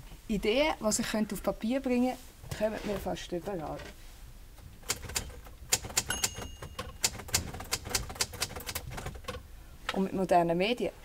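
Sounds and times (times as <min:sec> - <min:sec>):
typewriter key strikes: 0:04.9 - 0:09.4.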